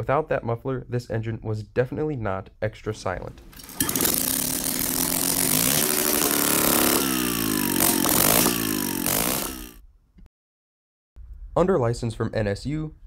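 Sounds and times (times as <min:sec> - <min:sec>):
rope pull starter: 0:03.4 - 0:09.8
loud rotary engine revving: 0:03.7 - 0:09.8.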